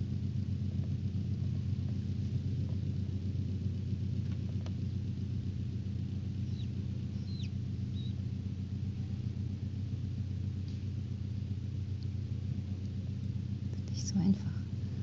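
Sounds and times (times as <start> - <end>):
low machine hum: 0.0 - 15.0
chick peeping: 6.4 - 8.2.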